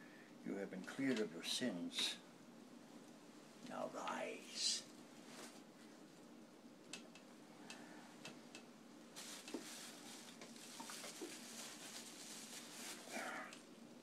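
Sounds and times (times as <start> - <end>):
breathy rustle into handkerchief: 9.2 - 13.5.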